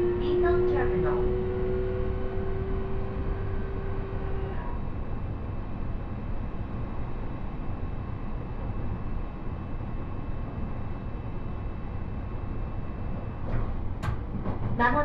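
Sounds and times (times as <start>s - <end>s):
faint steady whine: 0.0s - 14.0s
train wheels rumbling on rails: 12.6s - 15.0s.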